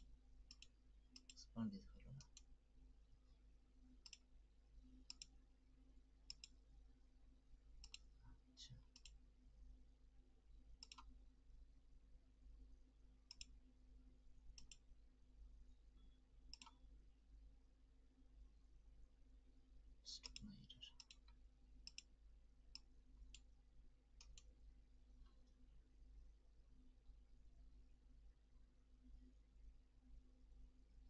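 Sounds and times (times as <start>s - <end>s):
computer mouse clicks: 0.5s - 1.4s, 4.0s - 4.2s, 5.0s - 5.3s, 6.3s - 6.6s, 7.8s - 8.1s, 8.9s - 9.2s, 10.8s - 11.1s, 13.3s - 13.6s, 14.5s - 14.8s, 16.5s - 16.8s, 20.2s - 22.1s, 24.2s - 24.5s.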